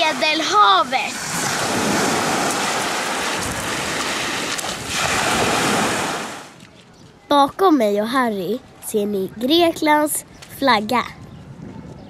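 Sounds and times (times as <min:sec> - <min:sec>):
waves washing up pebbly beach: 0:00.0 - 0:06.6
wind buffeting microphone: 0:00.0 - 0:07.6, 0:08.5 - 0:12.0.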